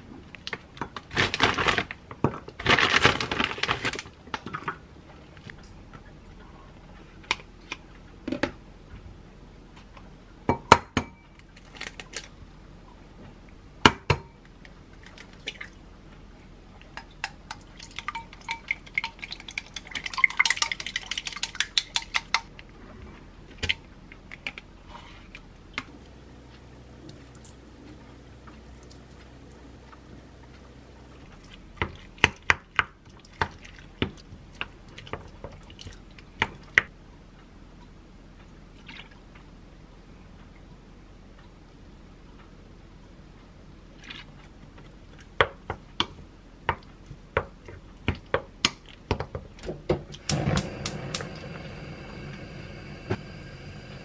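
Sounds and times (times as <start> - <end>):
eggs cracking on glass bowl: 16.9 - 22.5
utensil clinking in glass bowl: 17.8 - 22.4.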